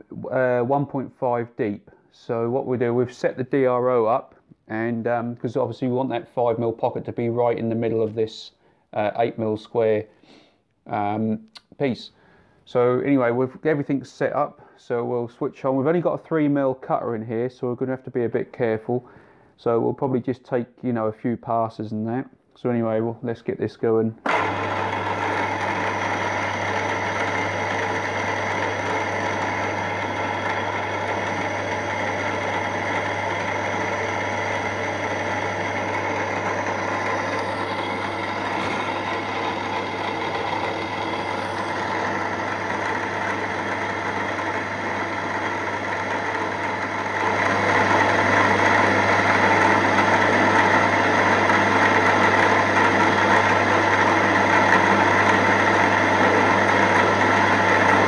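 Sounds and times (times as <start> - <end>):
milling machine spindle humming: 24.3 - 58.0.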